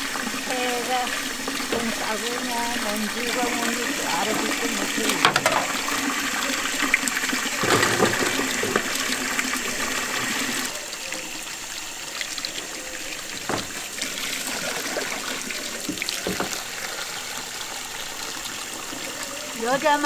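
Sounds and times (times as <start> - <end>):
water sloshing in basin: 0.0 - 11.4, 12.2 - 20.0
tap running into dipper: 0.2 - 10.7, 13.2 - 17.6.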